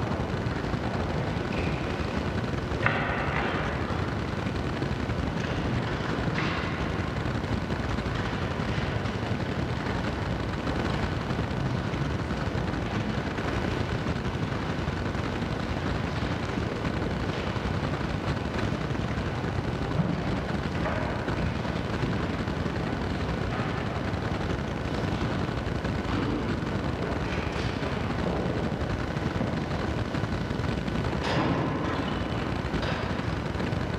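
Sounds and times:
low rumbling room noise: 0.0 - 33.9.

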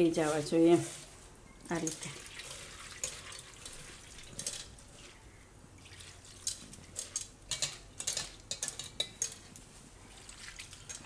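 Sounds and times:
wet squelches of hand mixing: 0.2 - 7.2, 9.4 - 11.0
water splashing through strainer: 1.8 - 5.2, 5.8 - 7.2, 10.1 - 11.0
water pouring from jug: 2.1 - 4.4, 10.1 - 11.0.

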